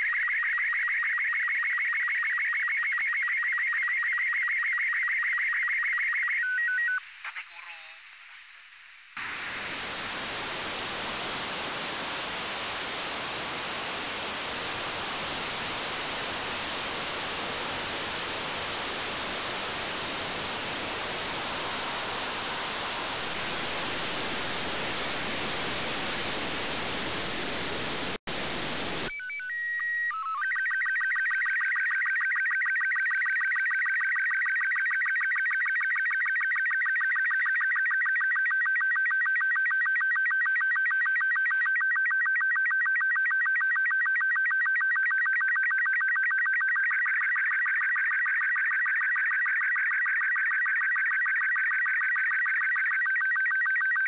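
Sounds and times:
warbling radio data tones: 0:02.9 - 0:36.6
radio static hiss: 0:07.0 - 0:29.1.

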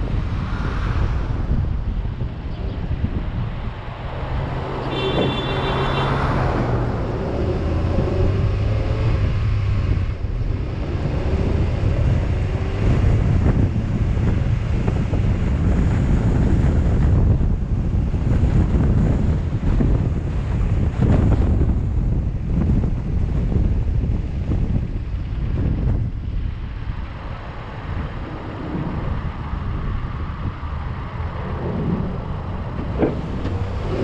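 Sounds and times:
vehicle engines rumbling: 0:00.0 - 0:34.0
wind buffeting microphone: 0:00.0 - 0:34.0.

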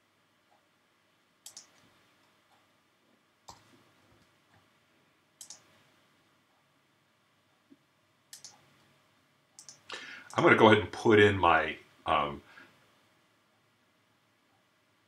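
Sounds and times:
computer mouse and keyboard clicks: 0:01.4 - 0:02.6, 0:03.4 - 0:04.7, 0:05.4 - 0:05.8, 0:08.3 - 0:08.7, 0:09.6 - 0:09.9.

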